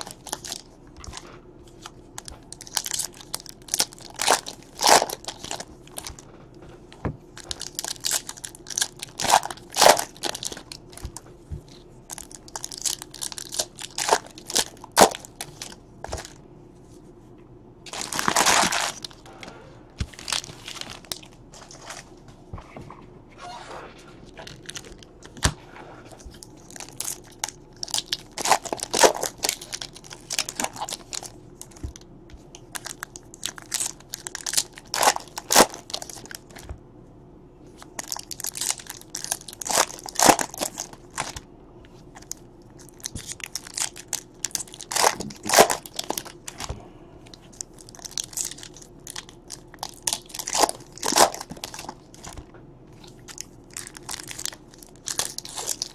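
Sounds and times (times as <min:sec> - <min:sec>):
foil wrappers crinkling and tearing: 0:00.0 - 0:06.2, 0:07.4 - 0:16.4, 0:17.9 - 0:19.3, 0:20.1 - 0:22.0, 0:24.2 - 0:32.0, 0:32.6 - 0:36.7, 0:37.8 - 0:41.4, 0:42.1 - 0:46.7, 0:47.4 - 0:52.4, 0:53.0 - 0:55.9.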